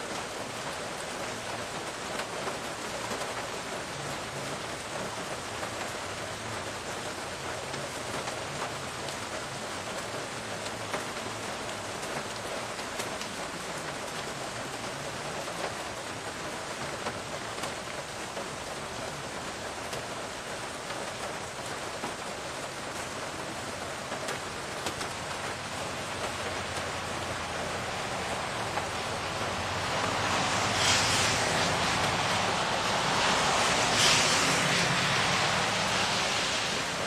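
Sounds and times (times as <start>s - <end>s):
raindrops ticking on surfaces: 0.0s - 37.0s
steady rain hiss: 0.0s - 37.0s.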